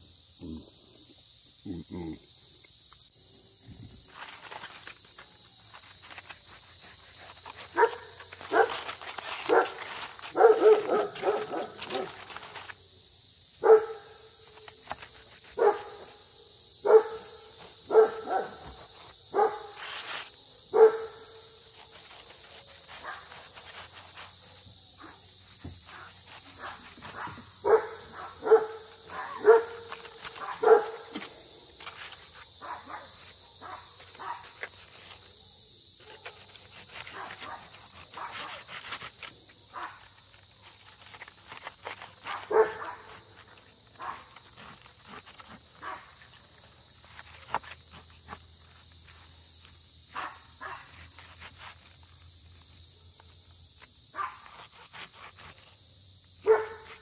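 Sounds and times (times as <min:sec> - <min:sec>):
dog barking: 0:07.7 - 0:08.8, 0:09.5 - 0:12.2, 0:13.6 - 0:14.0, 0:15.6 - 0:16.0, 0:16.8 - 0:17.3, 0:17.9 - 0:18.7, 0:19.3 - 0:19.8, 0:20.7 - 0:21.2, 0:26.6 - 0:31.2, 0:32.6 - 0:34.4, 0:42.4 - 0:43.1, 0:50.1 - 0:50.9, 0:56.4 - 0:57.0.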